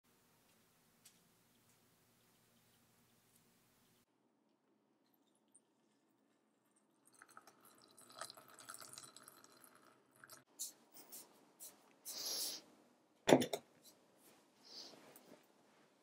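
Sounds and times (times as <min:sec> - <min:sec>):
water trickling into teapot: 0:05.0 - 0:10.5.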